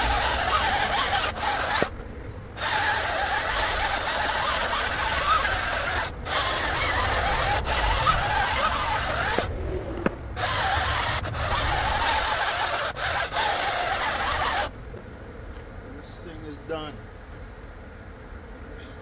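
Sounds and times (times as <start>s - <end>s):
chainsaw cutting log: 0.0s - 14.7s.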